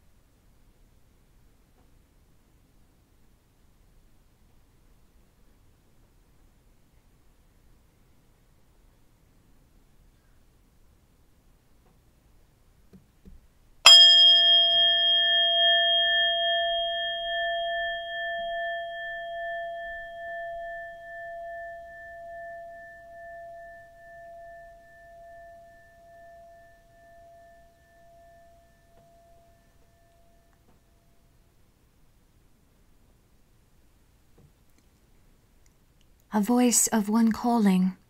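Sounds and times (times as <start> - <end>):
singing bowl ringing: 13.9 - 31.3.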